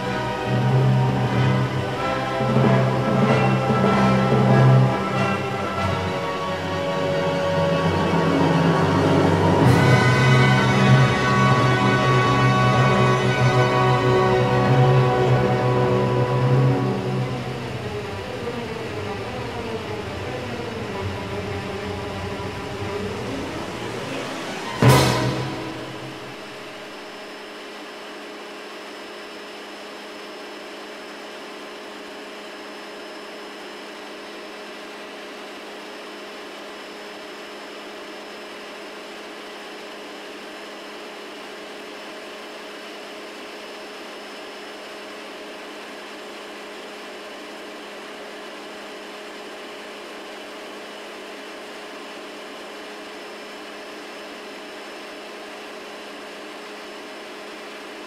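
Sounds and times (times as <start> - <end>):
helicopter cabin noise: 0.0 - 27.7.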